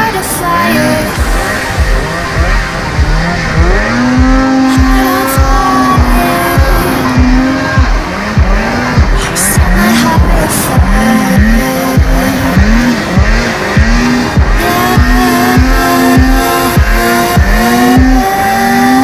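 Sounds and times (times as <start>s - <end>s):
pulsing synth lines: 0.0s - 19.0s
kick drum: 4.1s - 11.0s.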